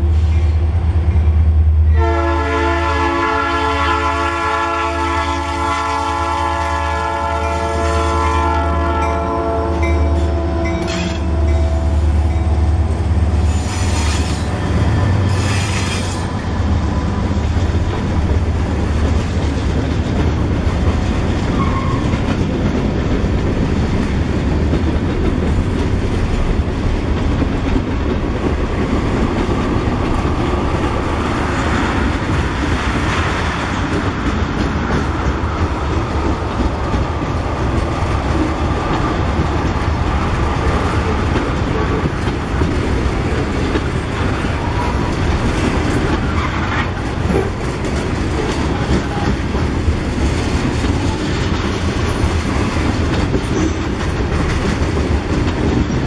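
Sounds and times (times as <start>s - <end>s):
train horn: 1.8s - 12.8s
train wheels clattering on rails: 4.4s - 56.0s.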